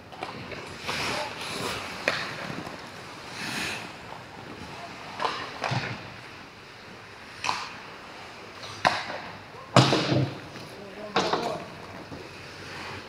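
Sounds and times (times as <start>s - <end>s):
skate blades scraping ice: 0.2s - 6.0s.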